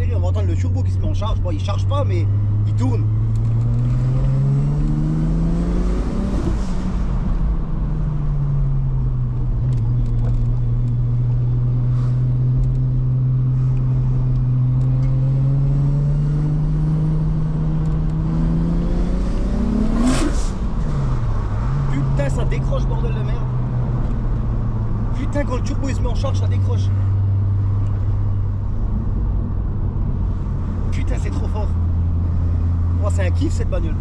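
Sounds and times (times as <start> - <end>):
car engine accelerating through gears: 0.6 - 33.2.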